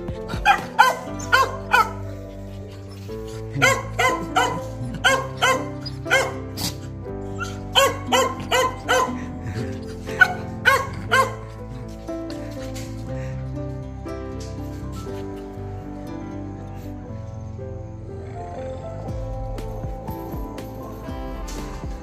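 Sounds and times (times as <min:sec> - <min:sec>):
background music with held notes: 0:00.0 - 0:22.0
small dog yapping: 0:03.5 - 0:06.8, 0:07.4 - 0:09.2, 0:10.2 - 0:11.4.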